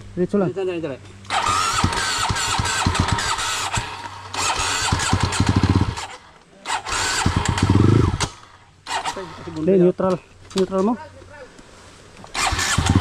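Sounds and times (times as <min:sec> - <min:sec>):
dirt bike engine sputtering: 0:01.3 - 0:09.7, 0:12.3 - 0:13.0.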